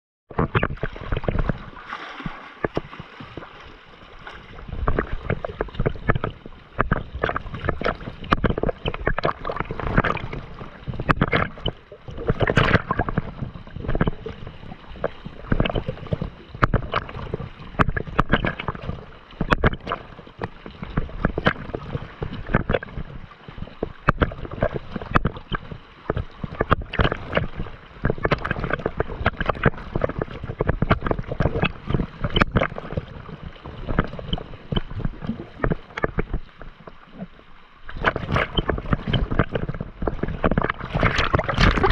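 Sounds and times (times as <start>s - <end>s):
sea water splashing: 0.3s - 41.9s.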